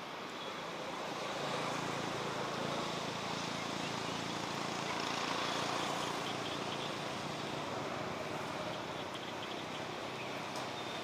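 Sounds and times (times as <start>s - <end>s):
outdoor background noise: 0.0s - 11.0s.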